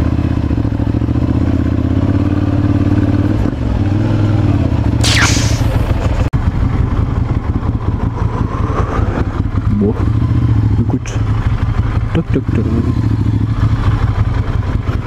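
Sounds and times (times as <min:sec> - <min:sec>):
motorcycle engine running at low revs: 0:00.0 - 0:05.0, 0:06.0 - 0:15.0
shrill sound falling in pitch: 0:05.0 - 0:05.9.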